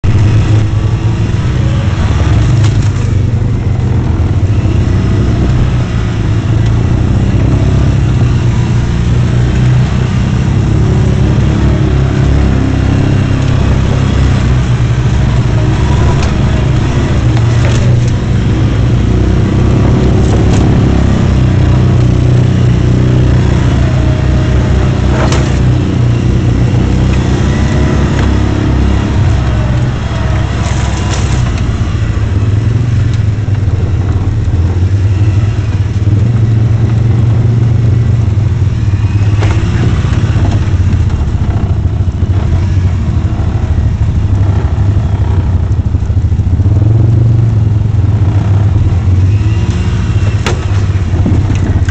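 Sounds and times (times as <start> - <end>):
utility vehicle engine running: 0.0 - 51.9
sharp knock over rough ground: 39.2 - 42.0.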